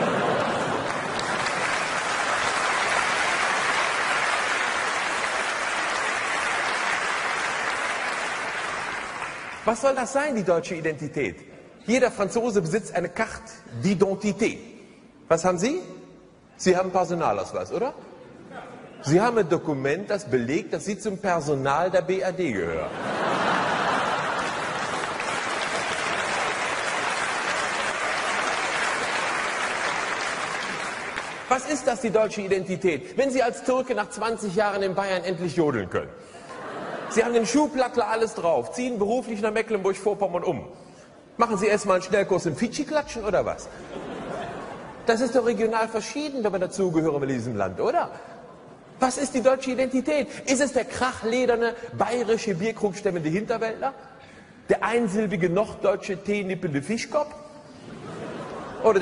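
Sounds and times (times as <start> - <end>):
audience applauding: 0.0 - 9.8, 23.5 - 32.0.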